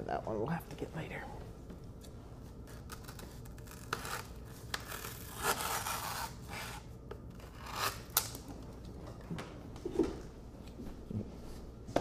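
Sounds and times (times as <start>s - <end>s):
knife cutting through foam: 3.8s - 6.8s.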